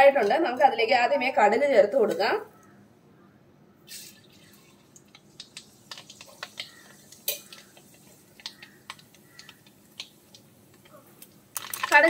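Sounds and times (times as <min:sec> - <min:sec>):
seeds popping and crackling: 0:03.9 - 0:12.0
seeds sizzling in hot oil: 0:03.9 - 0:12.0.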